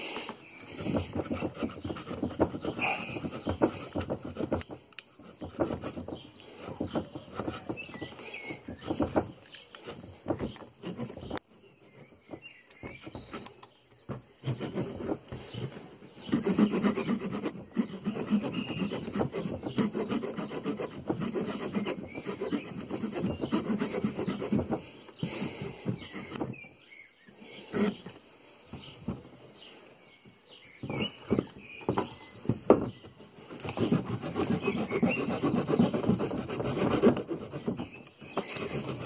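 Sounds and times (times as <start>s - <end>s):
saw rasping through branch: 0.7s - 13.7s, 14.4s - 26.6s, 27.5s - 28.2s, 33.4s - 39.0s.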